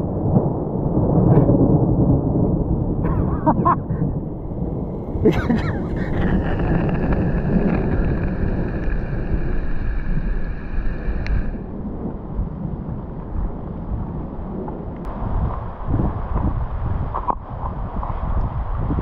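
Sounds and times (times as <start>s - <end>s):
wind buffeting microphone: 0.0s - 19.0s
bike tyres rolling on wet gravel: 4.1s - 19.0s
high hiss: 5.3s - 11.6s.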